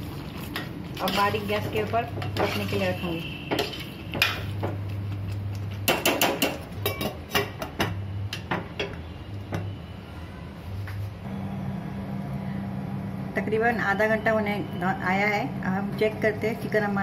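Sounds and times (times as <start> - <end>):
metal spoon clinking on pot: 5.9 - 7.7.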